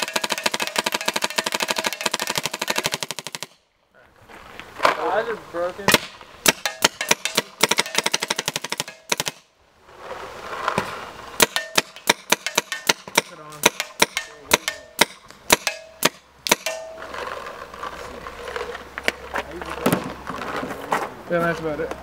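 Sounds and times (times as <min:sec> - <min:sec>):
paintball marker firing: 0:00.0 - 0:03.6, 0:05.9 - 0:09.5, 0:11.4 - 0:17.0.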